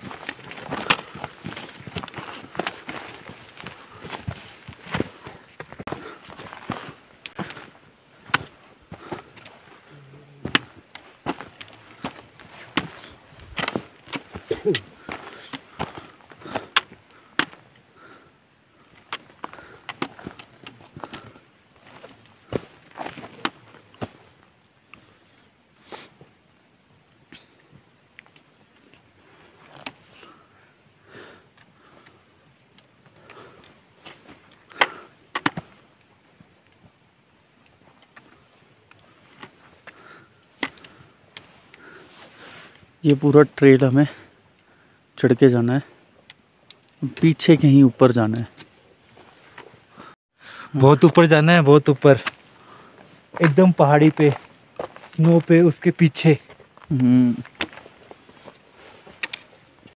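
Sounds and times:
footsteps crunching on stones: 0.0s - 17.6s, 19.0s - 24.3s, 51.0s - 59.9s.

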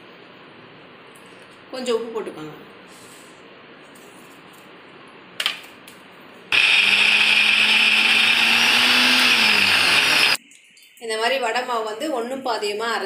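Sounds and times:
mixer grinder running: 6.5s - 10.4s.

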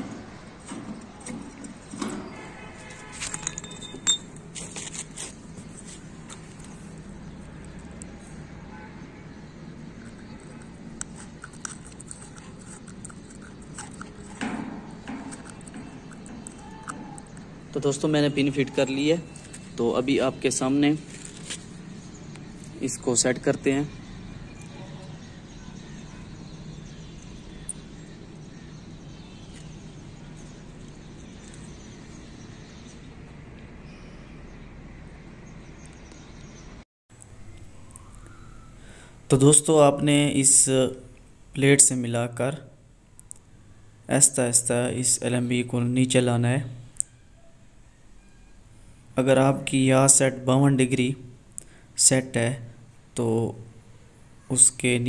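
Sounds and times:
outdoor background noise: 0.0s - 55.0s
metallic clicks and scrapes: 0.1s - 7.1s, 9.9s - 17.5s.

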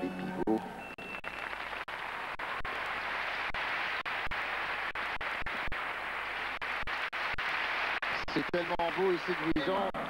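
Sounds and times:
crowd applauding: 1.1s - 10.0s.

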